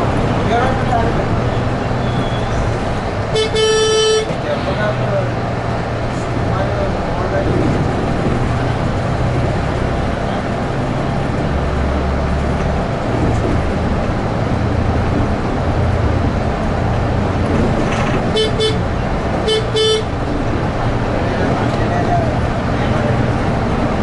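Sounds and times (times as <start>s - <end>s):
bus engine and road noise: 0.0s - 24.0s
bus horn toots: 2.0s - 2.6s, 3.3s - 4.4s, 18.3s - 20.2s.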